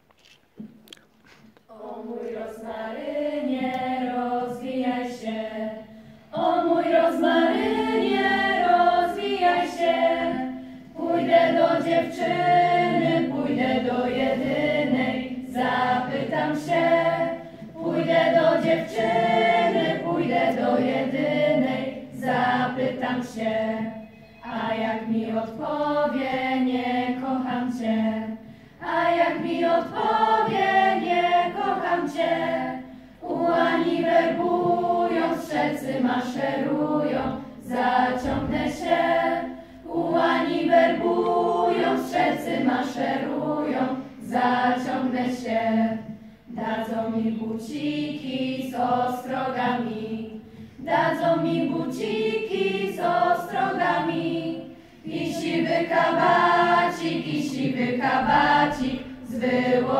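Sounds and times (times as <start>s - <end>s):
choir singing a cappella: 1.7s - 59.9s
singers breathing: 5.8s - 6.3s, 28.4s - 28.8s, 39.5s - 39.9s, 50.4s - 50.8s, 54.6s - 55.1s.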